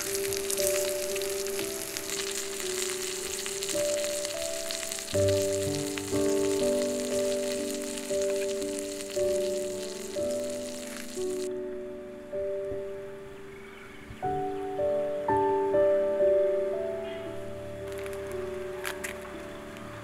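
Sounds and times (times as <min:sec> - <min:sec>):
steak sizzling in a pan: 0:00.0 - 0:11.5
background music with held notes: 0:00.0 - 0:20.0.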